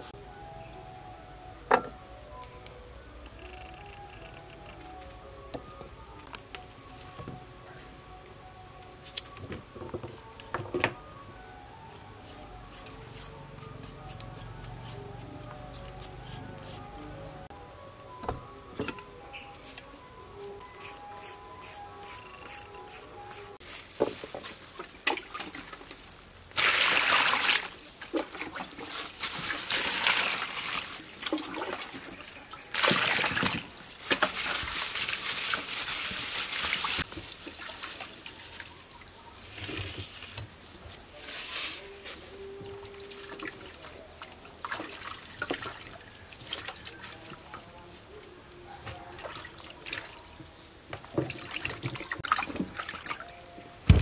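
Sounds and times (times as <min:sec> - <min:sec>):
water splashing and trickling: 0:23.6 - 0:40.4, 0:42.8 - 0:47.8, 0:49.1 - 0:54.0.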